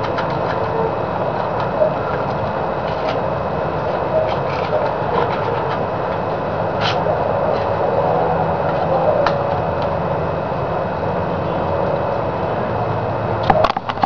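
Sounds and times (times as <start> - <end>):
low rumble with hiss: 0.0 - 14.0.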